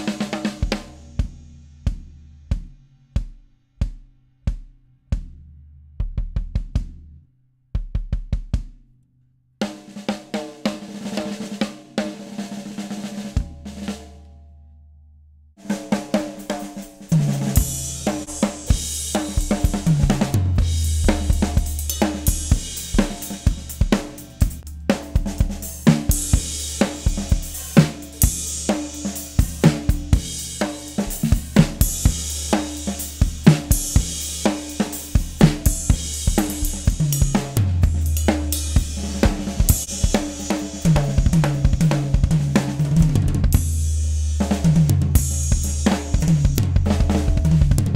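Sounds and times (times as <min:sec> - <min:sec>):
drum kit groove: 0:00.0 - 0:08.9, 0:09.6 - 0:14.3, 0:15.6 - 0:47.9
low held notes: 0:17.4 - 0:43.8.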